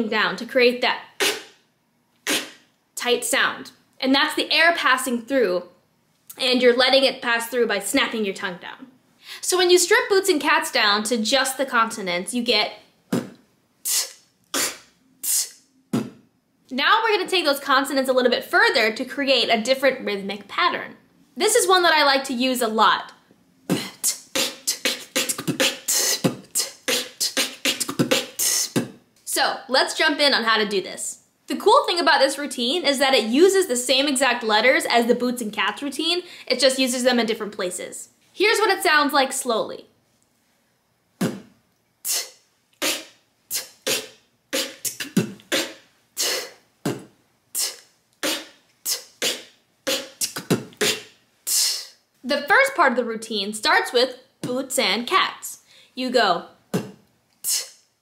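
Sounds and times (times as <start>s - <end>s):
beatboxing: 1.2s - 1.6s, 2.2s - 2.7s, 13.1s - 16.2s, 23.7s - 29.0s, 41.2s - 52.0s, 56.7s - 57.8s.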